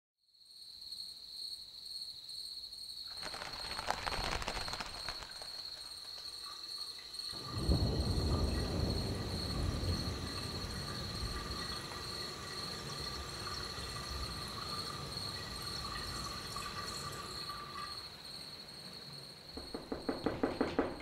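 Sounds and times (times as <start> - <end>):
dense crackling: 3.1 - 6.4.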